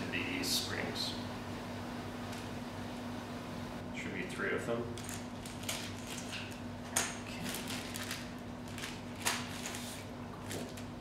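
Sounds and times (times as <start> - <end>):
faint steady hum: 0.0 - 11.0
plastic bag rustling: 5.0 - 11.0.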